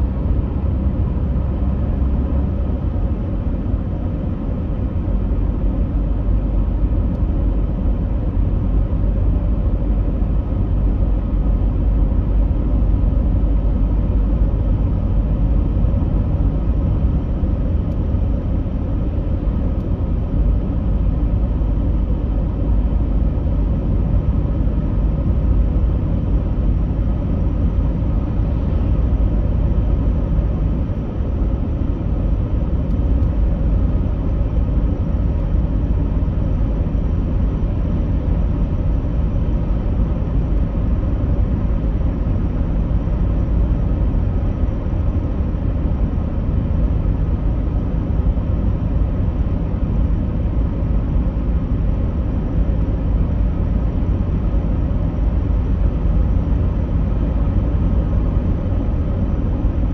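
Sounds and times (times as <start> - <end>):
low rumbling drone: 0.0 - 59.9.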